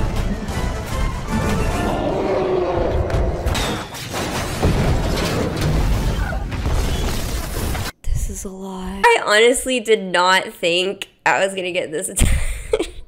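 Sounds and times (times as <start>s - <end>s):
orchestral score: 0.0s - 3.9s
booms and crashing impacts: 0.0s - 8.0s.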